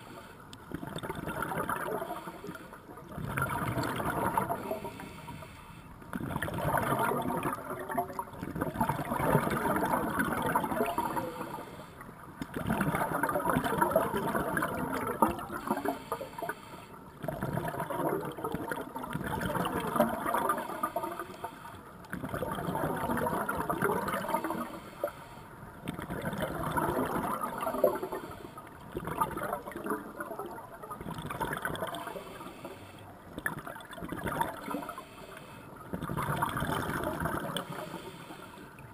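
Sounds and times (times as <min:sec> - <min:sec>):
gurgling underwater exhalation bubbles: 0:00.7 - 0:02.3, 0:03.0 - 0:04.8, 0:06.1 - 0:11.6, 0:12.5 - 0:16.1, 0:17.2 - 0:21.2, 0:22.1 - 0:24.8, 0:25.9 - 0:28.3, 0:28.9 - 0:32.3, 0:33.3 - 0:35.0, 0:35.9 - 0:38.0.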